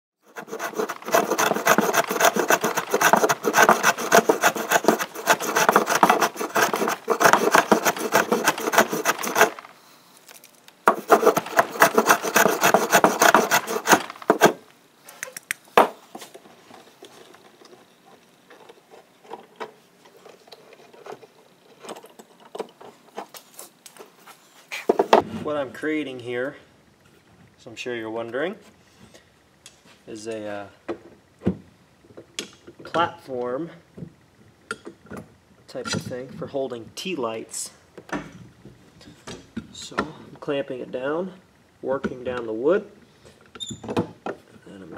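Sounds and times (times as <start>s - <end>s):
hand plane shaving wood: 0.2s - 9.7s, 10.9s - 14.6s.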